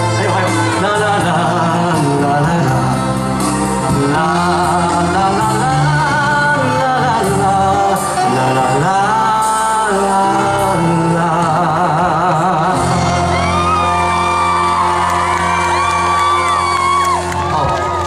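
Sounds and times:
audience screaming and whooping: 12.7s - 18.0s.

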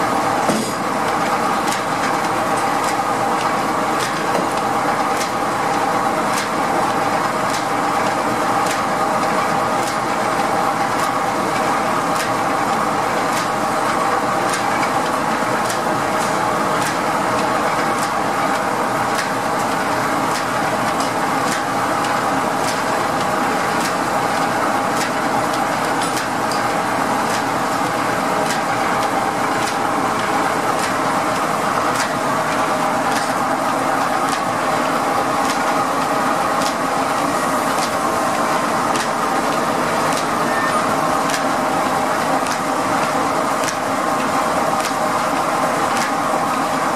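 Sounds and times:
sawmill machinery hum: 0.0s - 46.9s.

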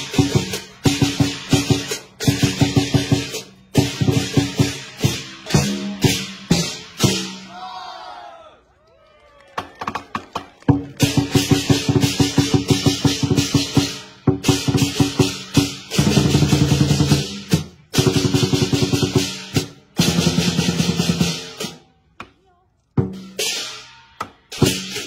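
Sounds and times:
hand cymbals clashing: 0.0s - 7.4s
drum beaten in fast rhythm: 0.0s - 7.6s, 9.8s - 21.9s, 23.0s - 25.0s.

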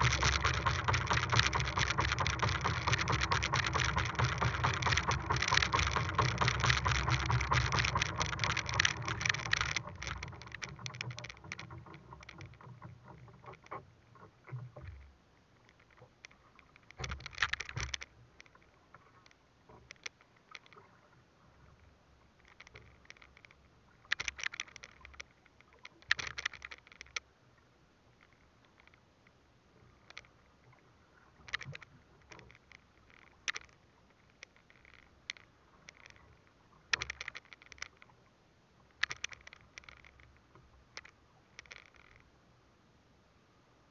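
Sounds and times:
water splashing against boat hull: 0.0s - 27.3s.

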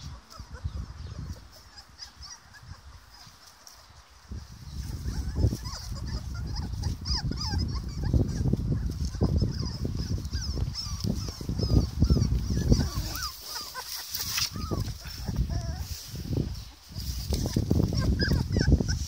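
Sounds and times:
puppies squeaking and whimpering: 0.0s - 19.0s
low rumbling and bumps: 4.7s - 13.3s.

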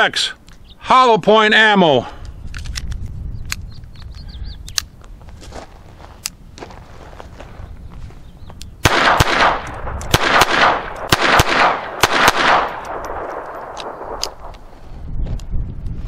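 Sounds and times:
pistol shots with echo: 8.8s - 14.6s.

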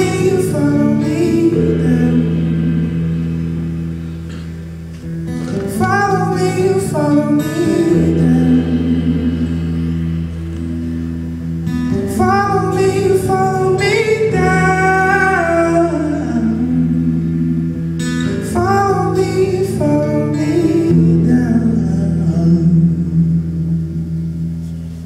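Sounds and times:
acoustic guitar chords: 0.0s - 25.0s
man singing high phrases: 5.8s - 9.2s.

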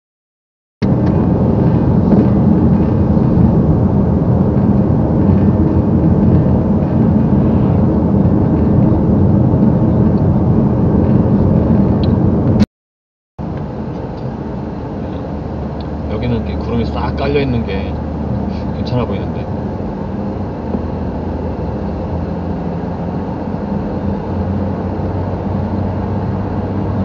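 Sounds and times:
car road and engine noise: 0.8s - 12.7s, 13.4s - 27.0s.

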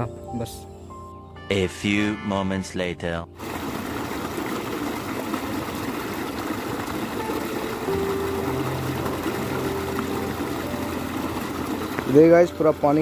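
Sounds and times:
water rushing in stream: 3.4s - 13.0s.

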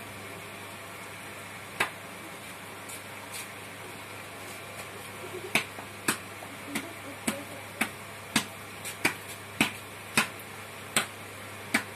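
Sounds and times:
sharp snaps: 7.8s - 11.9s.

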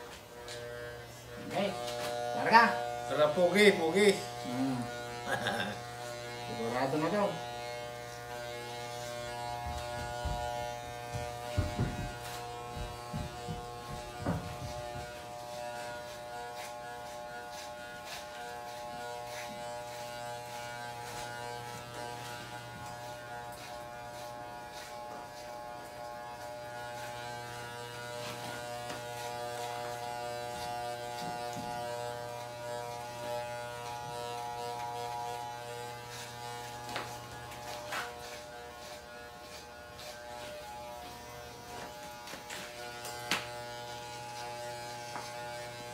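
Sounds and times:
electric hair clippers buzzing: 0.0s - 45.9s.

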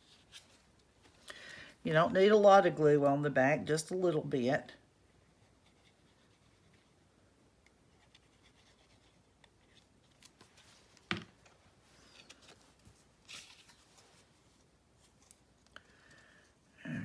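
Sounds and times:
rustling of cardstock and paper: 8.0s - 15.7s.

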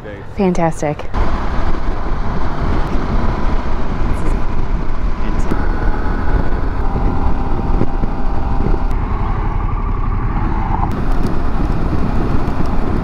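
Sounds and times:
faint steady whine: 0.1s - 13.0s
wind rush: 1.1s - 13.0s.

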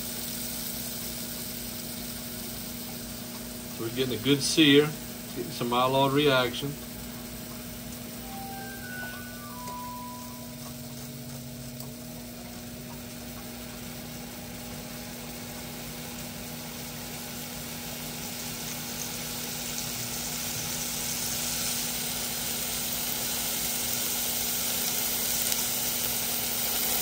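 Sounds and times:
meat sizzling in a pan: 0.0s - 27.0s.

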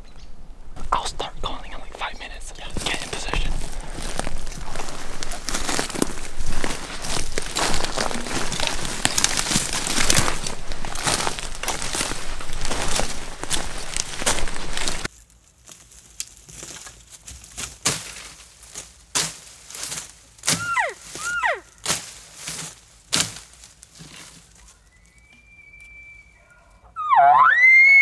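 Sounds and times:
brush rustling against clothing: 1.5s - 15.2s
footsteps snapping twigs: 2.6s - 24.8s
elk calls: 20.6s - 21.6s, 25.0s - 28.0s
faint high whistle: 24.8s - 28.0s.

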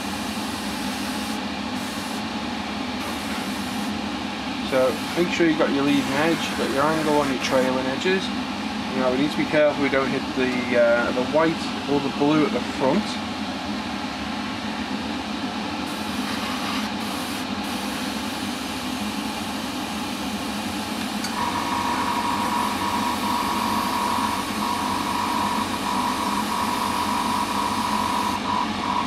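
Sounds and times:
extractor fan running: 0.0s - 29.0s.

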